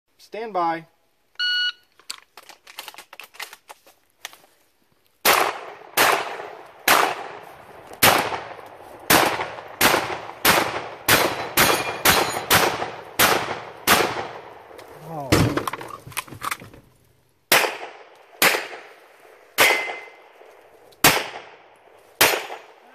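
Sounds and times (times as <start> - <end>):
shotgun blasts with echo: 5.2 - 7.4, 8.0 - 15.6, 17.5 - 19.0, 19.6 - 20.2, 21.0 - 21.6, 22.2 - 22.9.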